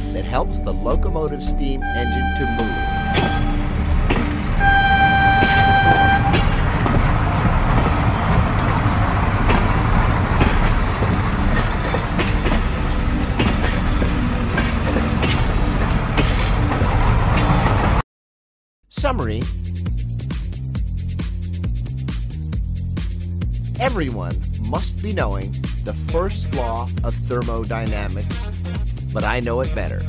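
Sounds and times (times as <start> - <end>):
train rumbling: 0.0 - 18.0, 22.8 - 30.0
steam locomotive whistle: 1.8 - 8.9
wheels clacking over rails: 3.0 - 18.0.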